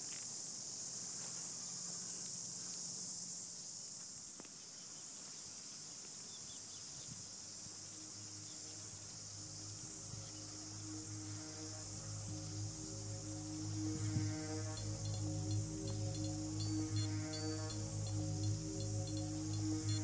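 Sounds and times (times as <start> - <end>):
high-pitched insect chorus: 0.0 - 20.0
soft music: 7.6 - 20.0.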